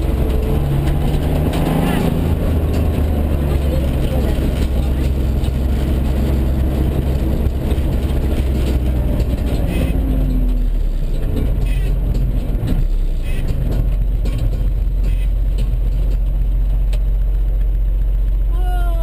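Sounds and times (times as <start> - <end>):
car engine running from inside: 0.0 - 19.0.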